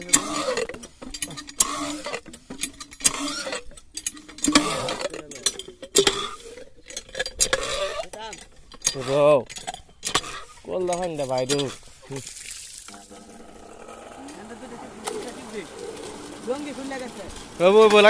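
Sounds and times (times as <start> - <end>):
clattering and scraping: 0.0 - 12.2.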